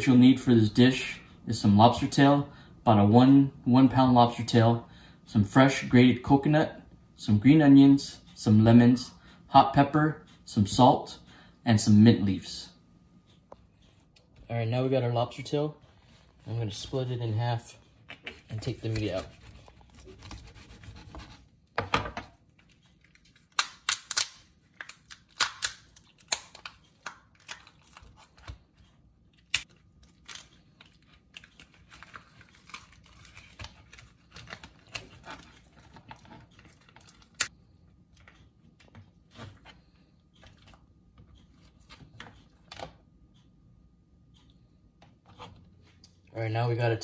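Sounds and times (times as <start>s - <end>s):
lobster shell cracking: 23.0s - 28.5s, 29.4s - 37.5s.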